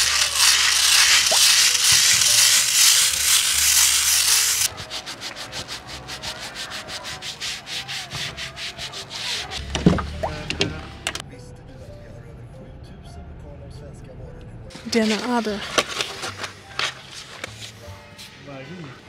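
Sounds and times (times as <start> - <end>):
scrubbing brush on concrete: 0.0 - 9.7.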